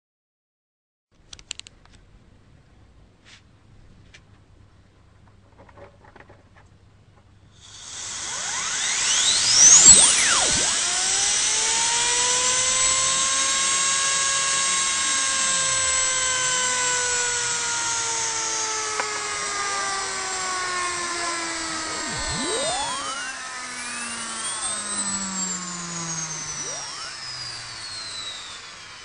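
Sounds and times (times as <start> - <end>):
turbine generator whining: 7.6 - 29.0.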